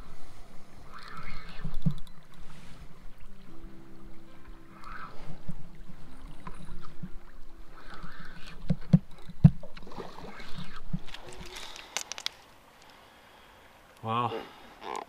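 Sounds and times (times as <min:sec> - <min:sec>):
water sloshing and splashing: 0:00.0 - 0:13.0.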